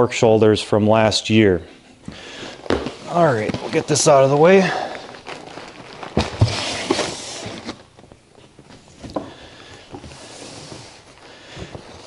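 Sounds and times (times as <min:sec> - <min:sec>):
cardboard boxes handled: 0:02.6 - 0:12.0
cardboard box scraping: 0:06.1 - 0:07.8.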